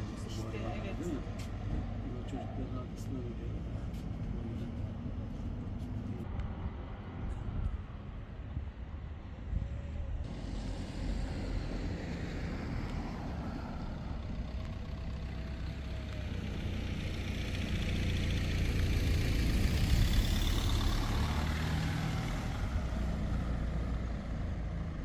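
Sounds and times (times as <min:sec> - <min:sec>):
car driving past: 0:10.2 - 0:25.0.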